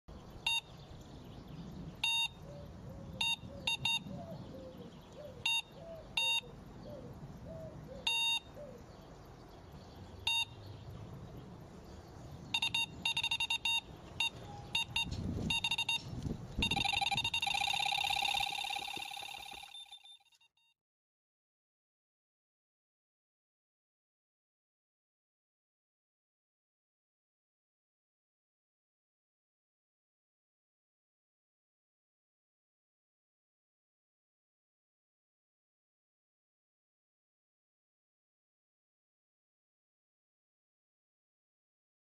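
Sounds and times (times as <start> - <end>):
electronic beeps: 0.4 - 0.7, 2.0 - 2.4, 3.2 - 4.1, 5.4 - 6.5, 8.1 - 8.5, 10.2 - 10.6, 12.5 - 20.5.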